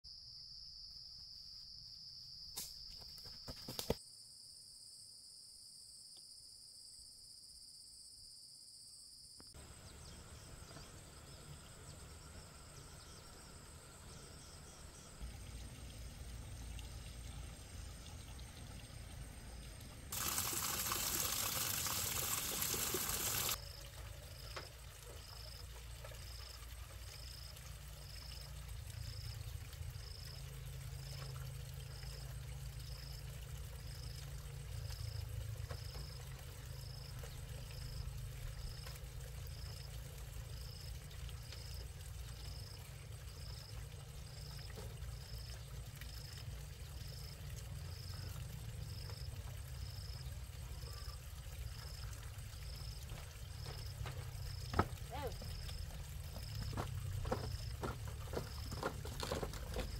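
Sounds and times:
rushing water: 0:20.1 - 0:32.3, 0:40.2 - 0:59.9.

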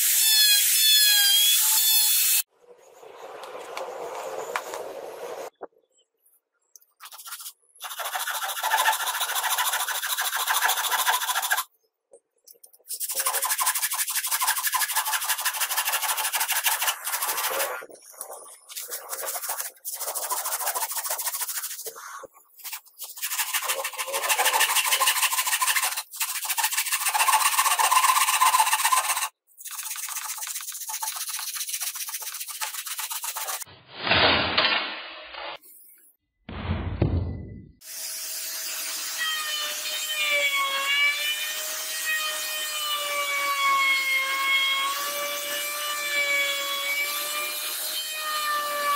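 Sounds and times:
hand saw cutting wood: 0:07.1 - 0:11.7, 0:12.9 - 0:17.9, 0:18.7 - 0:33.7.

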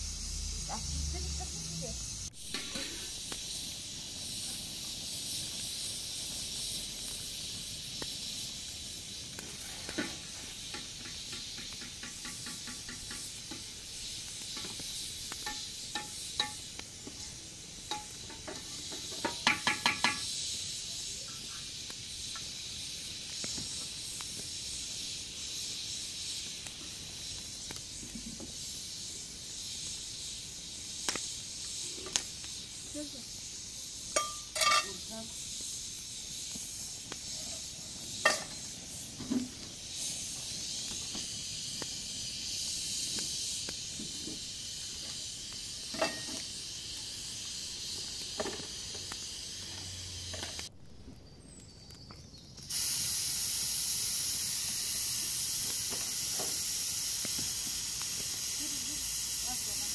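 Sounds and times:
cooking pot steaming hiss: 0:00.0 - 0:59.9
metal clinking: 0:34.2 - 0:35.0.

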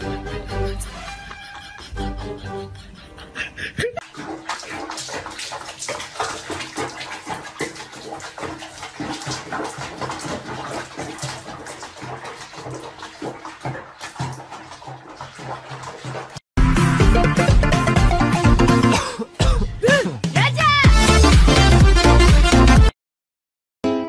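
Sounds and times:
water splashing in basin: 0:04.0 - 0:16.4.

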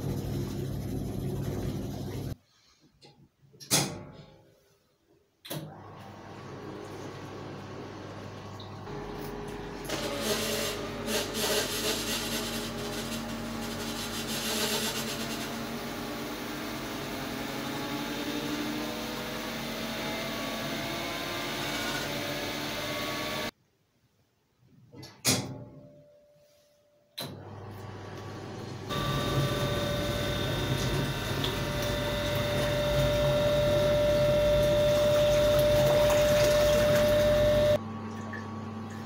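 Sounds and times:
washing machine motor hum: 0:00.0 - 0:02.4, 0:05.5 - 0:23.5, 0:27.3 - 0:39.0
water churning and sloshing: 0:29.7 - 0:38.5.

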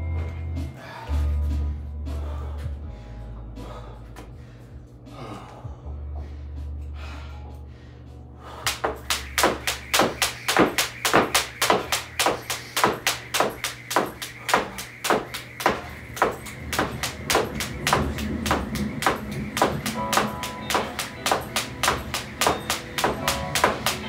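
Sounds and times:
background music: 0:00.0 - 0:24.0
feet landing: 0:08.7 - 0:24.0
jump rope slapping: 0:08.7 - 0:24.0.

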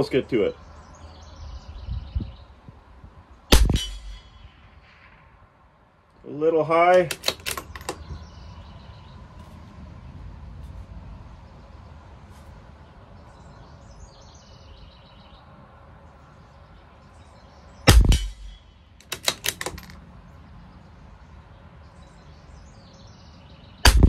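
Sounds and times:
rifle shot: 0:03.5 - 0:05.2, 0:17.9 - 0:19.9
rifle bolt metallic clicks: 0:06.9 - 0:08.1, 0:17.9 - 0:20.0.

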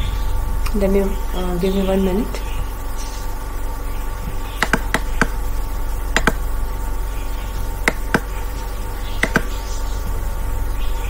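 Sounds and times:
steady electrical hum: 0:00.0 - 0:11.0
computer mouse clicking: 0:04.6 - 0:05.4, 0:06.2 - 0:06.4, 0:07.9 - 0:08.3, 0:09.2 - 0:09.5.

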